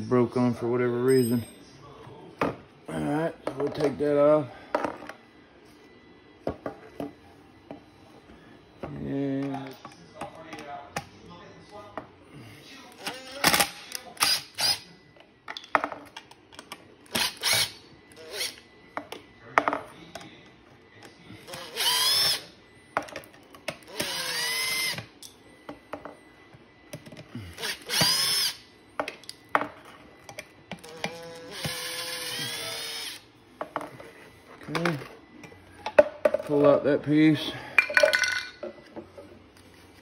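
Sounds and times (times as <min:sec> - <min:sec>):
cordless drill motor whine: 0:14.2 - 0:14.9, 0:17.1 - 0:18.7, 0:21.4 - 0:22.5, 0:23.9 - 0:25.1, 0:27.4 - 0:28.7, 0:30.8 - 0:33.3
drill clicks: 0:17.1 - 0:18.5, 0:21.5 - 0:22.4, 0:27.6 - 0:28.6, 0:30.8 - 0:33.2.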